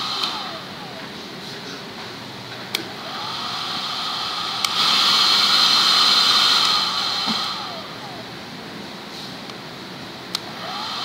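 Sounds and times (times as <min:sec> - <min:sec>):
hair dryer blowing: 0:00.0 - 0:01.6, 0:02.8 - 0:08.4, 0:10.3 - 0:11.0
hair dryer switch click: 0:04.6 - 0:04.8.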